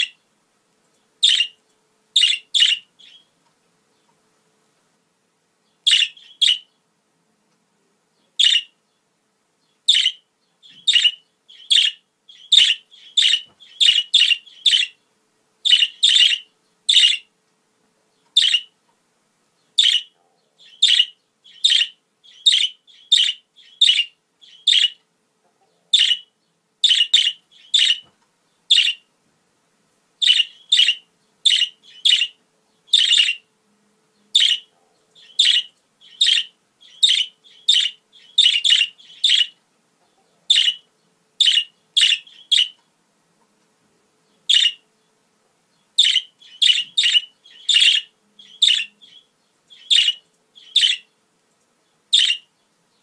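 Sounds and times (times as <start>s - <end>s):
budgerigars chirping: 0.0s - 0.2s, 1.2s - 1.6s, 2.2s - 3.3s, 5.8s - 6.7s, 8.3s - 8.8s, 9.8s - 15.0s, 15.6s - 17.3s, 18.3s - 18.8s, 19.7s - 25.0s, 25.9s - 28.1s, 28.7s - 29.1s, 30.2s - 33.5s, 34.3s - 39.6s, 40.2s - 42.8s, 44.4s - 44.9s, 45.8s - 51.2s, 52.1s - 52.5s.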